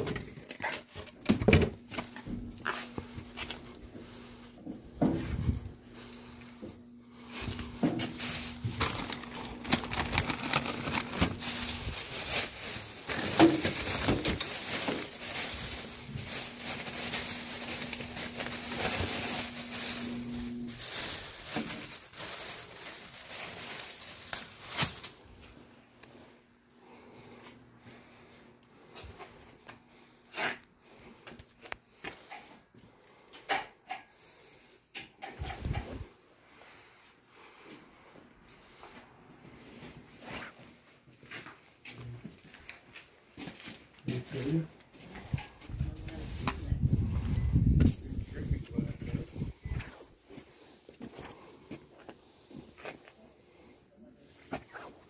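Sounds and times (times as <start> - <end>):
plastic bags rustling: 0.0 - 26.3, 38.6 - 53.1
faint steady hum: 1.0 - 32.0.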